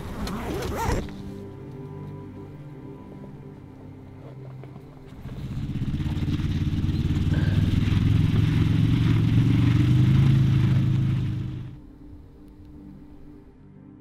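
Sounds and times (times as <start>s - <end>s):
vehicle engine running: 5.0s - 11.8s.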